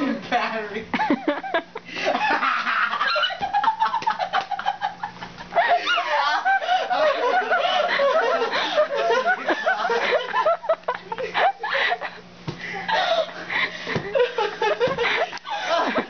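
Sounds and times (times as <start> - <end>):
high-pitched hysterical laughter: 1.1 - 12.1.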